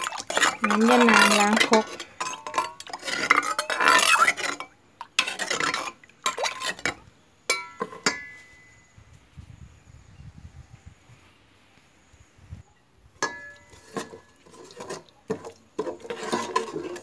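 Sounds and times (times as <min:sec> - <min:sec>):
spoon scraping in a mortar: 0:00.0 - 0:08.7, 0:13.2 - 0:17.0.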